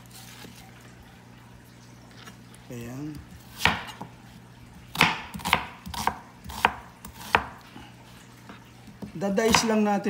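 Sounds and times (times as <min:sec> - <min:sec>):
knife striking cutting board: 0:03.6 - 0:04.1, 0:04.9 - 0:07.6.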